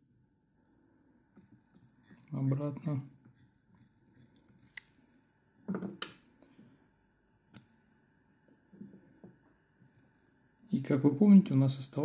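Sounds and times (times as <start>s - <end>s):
small scissors snipping thread: 7.4s - 7.7s.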